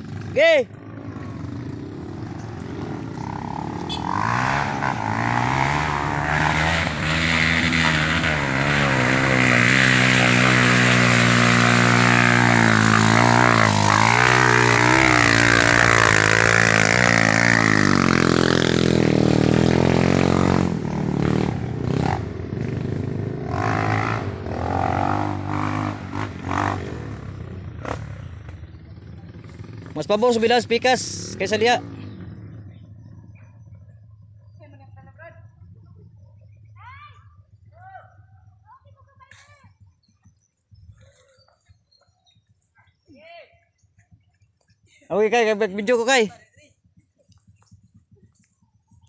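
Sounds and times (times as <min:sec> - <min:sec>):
dirt bike engine revving: 0:00.0 - 0:35.6.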